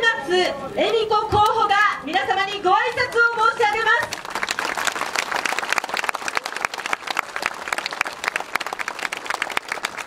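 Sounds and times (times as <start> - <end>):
crowd applauding: 3.9 - 10.0.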